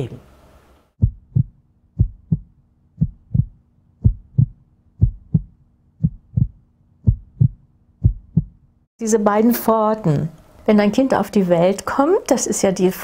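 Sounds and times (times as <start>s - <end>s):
faint steady hum: 0.0s - 13.0s
heartbeat thumps: 1.0s - 8.6s.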